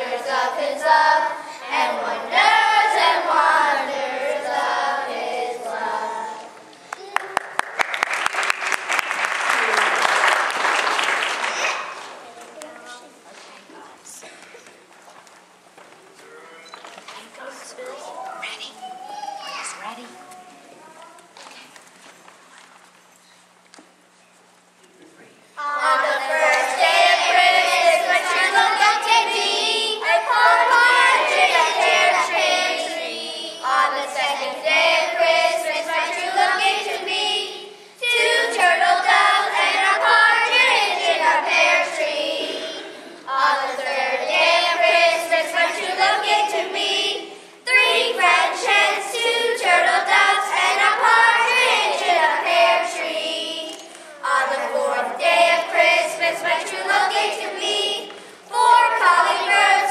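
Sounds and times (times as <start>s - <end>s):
children singing together: 0.0s - 6.7s, 25.6s - 59.9s.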